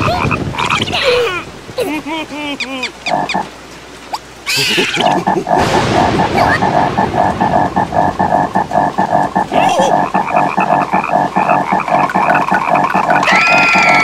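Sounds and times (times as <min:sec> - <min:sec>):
cartoon frog croaking: 0:00.0 - 0:01.2, 0:02.8 - 0:03.5, 0:04.1 - 0:14.0
burst of noise: 0:04.6 - 0:14.0.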